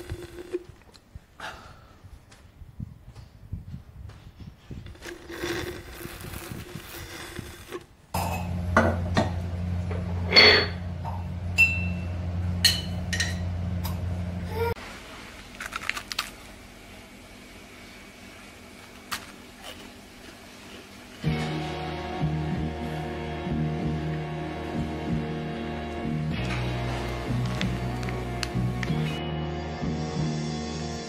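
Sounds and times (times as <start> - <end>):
steady low hum: 4.7 - 15.6, 16.3 - 31.0
glass jar clinking: 11.6 - 12.0, 12.6 - 13.4.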